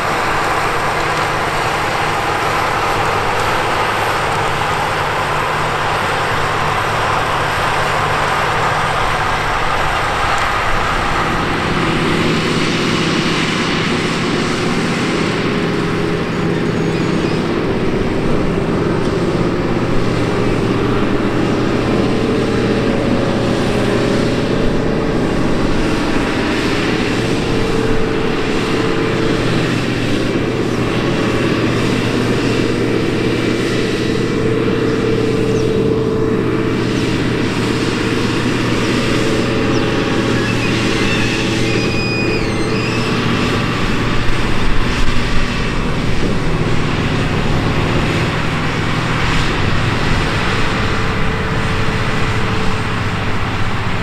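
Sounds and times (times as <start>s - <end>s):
tractor diesel engine droning: 0.0s - 54.0s.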